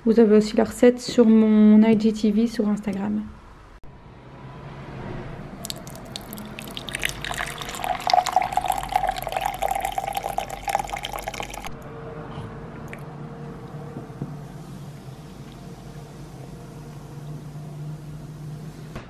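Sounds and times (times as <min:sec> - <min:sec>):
drink pouring into glass: 0:05.6 - 0:11.8
faint steady hum: 0:05.6 - 0:19.0.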